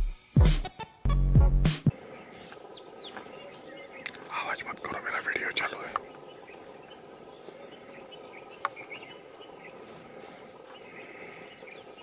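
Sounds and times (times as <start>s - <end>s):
bird chirps: 2.1s - 10.0s, 10.7s - 12.0s.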